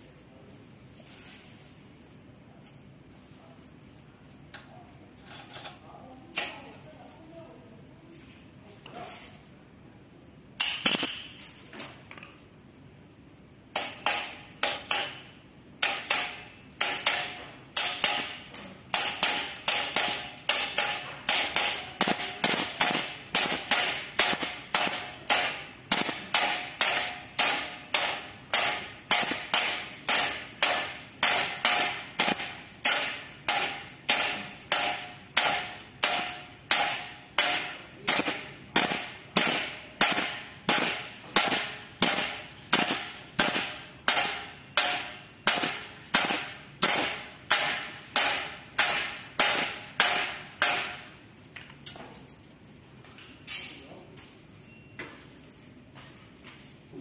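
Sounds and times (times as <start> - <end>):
hammer tapping metal: 10.6 - 11.6, 13.7 - 51.2.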